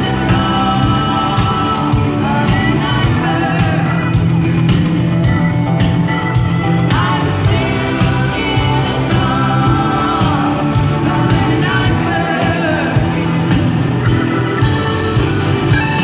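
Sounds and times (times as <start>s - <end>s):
woman singing: 0.0s - 4.2s, 6.8s - 13.3s
live rock band playing: 0.0s - 16.0s.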